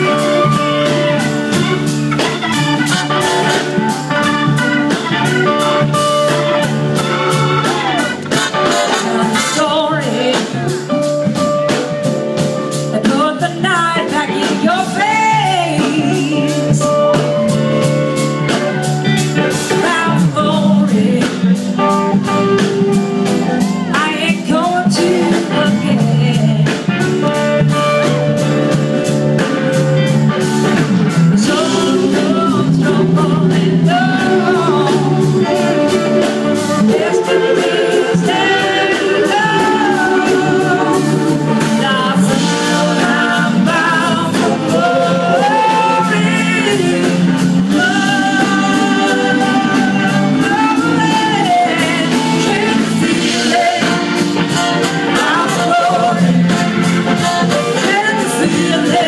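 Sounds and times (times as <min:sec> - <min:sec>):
person singing: 0:00.0 - 0:28.1, 0:31.1 - 0:59.0
drums: 0:00.0 - 0:59.0
electric guitars: 0:00.0 - 0:59.0.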